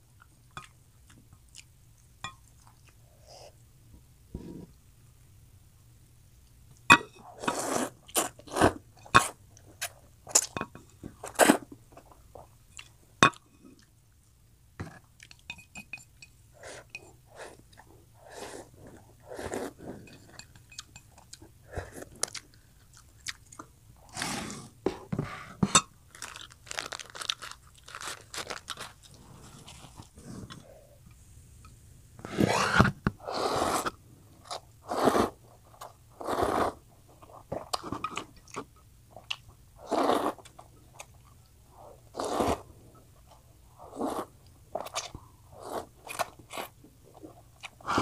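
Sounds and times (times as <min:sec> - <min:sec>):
wet chewing: 0:19.3 - 0:23.7
loud noodle slurping: 0:34.8 - 0:35.4.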